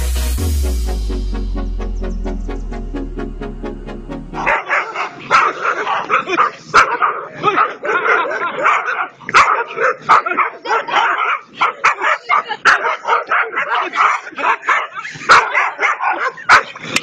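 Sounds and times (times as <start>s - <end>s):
electronic music: 0.0s - 4.7s
dogs barking and yelping: 4.4s - 17.0s.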